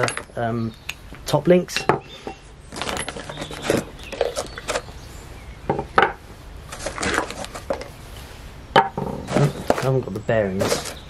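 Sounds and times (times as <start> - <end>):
metal parts knocking on wood: 0.0 - 0.4, 8.8 - 9.9.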